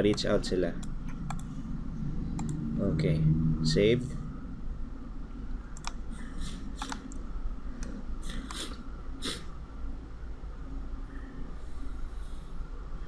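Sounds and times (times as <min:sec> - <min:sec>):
computer mouse clicks: 0:00.0 - 0:01.6, 0:02.3 - 0:02.6, 0:05.7 - 0:08.8
steady low hum: 0:00.0 - 0:13.0.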